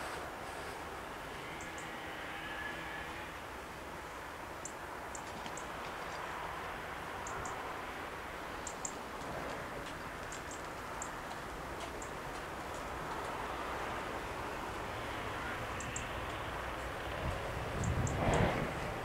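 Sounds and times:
outdoor background hiss: 0:00.0 - 0:19.0
faint high-pitched ticks: 0:01.5 - 0:02.0, 0:04.6 - 0:06.3, 0:07.2 - 0:07.6, 0:08.6 - 0:13.4, 0:15.7 - 0:18.5.

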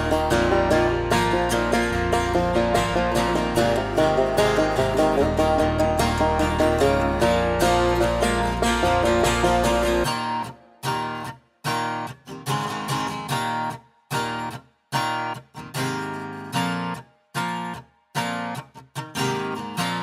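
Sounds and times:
strummed guitar: 0:00.0 - 0:20.0.

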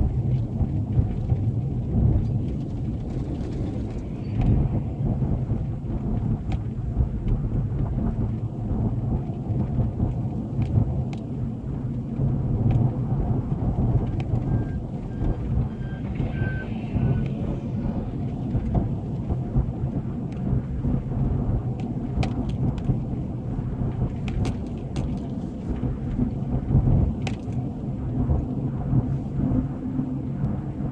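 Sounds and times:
car road noise rumble: 0:00.0 - 0:30.9
faint beeps: 0:14.4 - 0:18.3.

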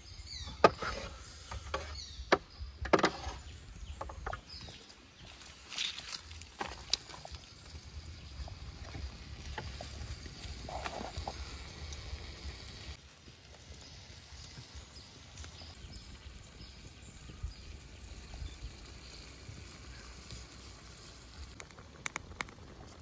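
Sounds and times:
water bubbling in wok: 0:06.2 - 0:23.0.

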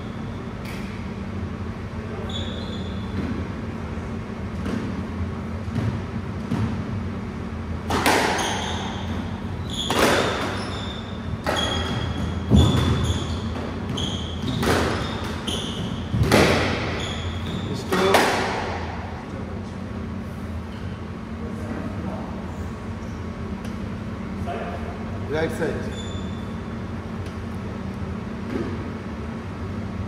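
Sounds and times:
squash ball hits ringing: 0:07.9 - 0:18.8
shoes squeaking on wooden floor: 0:08.4 - 0:16.2, 0:16.8 - 0:17.9.

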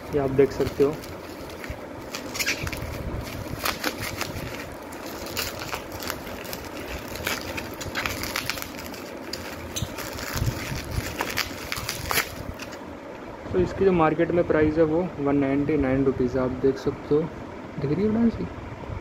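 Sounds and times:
bubble wrap crinkling: 0:00.0 - 0:12.8.

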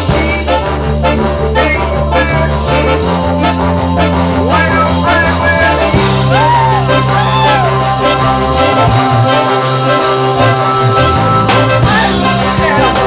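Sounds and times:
big band playing: 0:00.0 - 0:13.0
pitch-bending melody line: 0:00.0 - 0:13.0
drum beat: 0:04.4 - 0:13.0.

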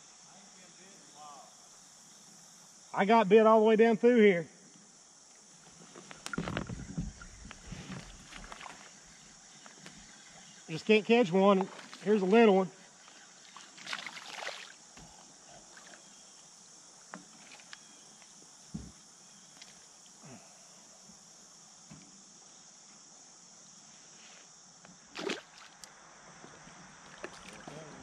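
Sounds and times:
steady high hiss: 0:00.0 - 0:28.0
fish splashing in water: 0:13.4 - 0:14.8, 0:25.1 - 0:25.8.

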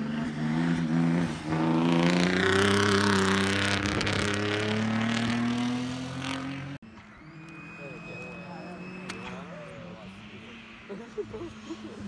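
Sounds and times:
race car engine at full throttle: 0:00.0 - 0:12.0.

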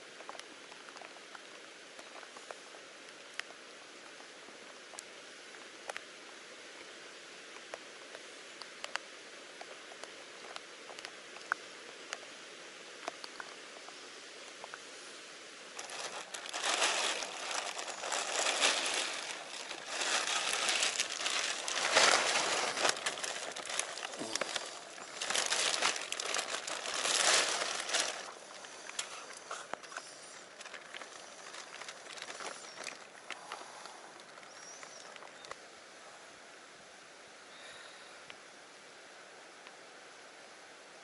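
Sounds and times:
small ticks: 0:07.5 - 0:12.3
plastic sheeting crinkling: 0:15.7 - 0:33.6.

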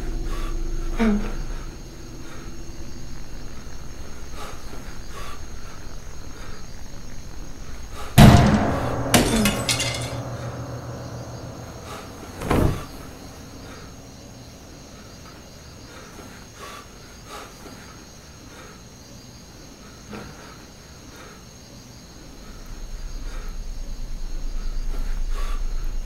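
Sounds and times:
glass shattering: 0:08.2 - 0:11.7
glass shards tinkling: 0:09.1 - 0:10.2.

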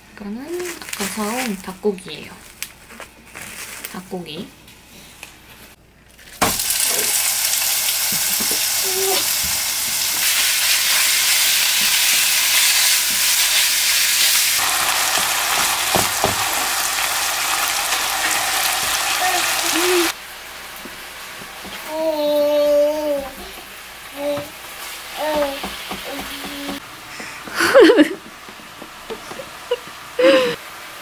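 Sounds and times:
chicken sizzling in frying pan: 0:06.4 - 0:31.0
spatula knocking against pan: 0:25.3 - 0:26.8.

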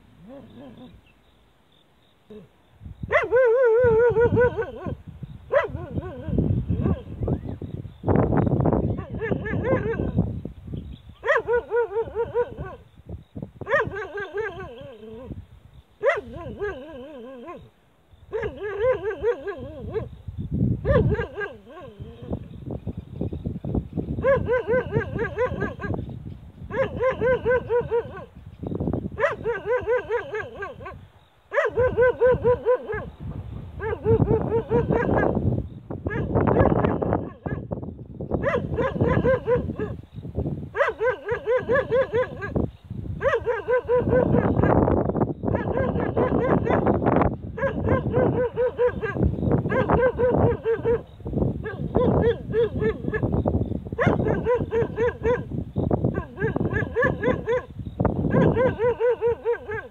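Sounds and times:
large dog barking: 0:03.1 - 0:07.1, 0:09.0 - 0:10.2, 0:11.2 - 0:12.8, 0:13.6 - 0:15.3, 0:16.0 - 0:17.7, 0:18.3 - 0:20.1, 0:20.8 - 0:22.3, 0:24.2 - 0:26.0, 0:26.7 - 0:28.3, 0:29.2 - 0:35.4, 0:36.1 - 0:37.7, 0:38.4 - 0:40.0, 0:40.7 - 0:44.9, 0:45.5 - 0:53.4, 0:54.0 - 0:55.5, 0:56.1 - 0:59.9.

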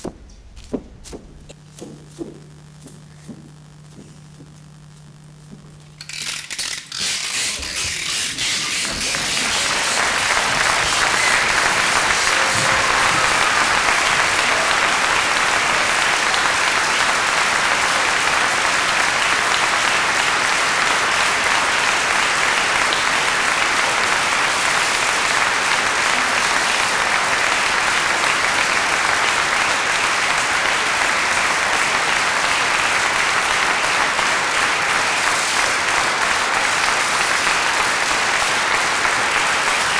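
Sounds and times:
audience applauding: 0:08.1 - 0:39.9.

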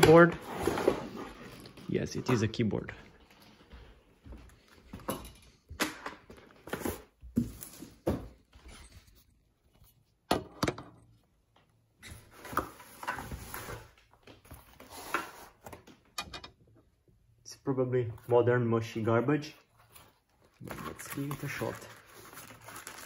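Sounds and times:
cardboard scraping and rustling: 0:00.3 - 0:01.6.

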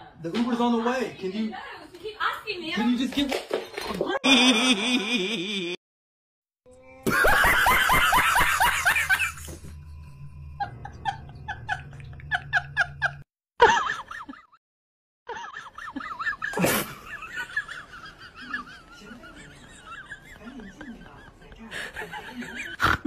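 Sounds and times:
person laughing: 0:04.2 - 0:05.8, 0:07.0 - 0:09.6, 0:15.3 - 0:21.2.

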